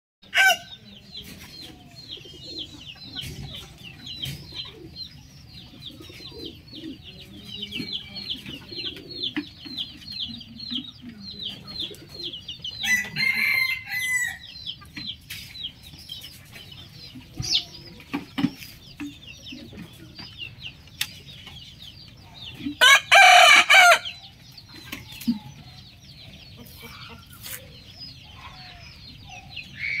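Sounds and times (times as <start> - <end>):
rooster crowing: 22.8 - 24.1.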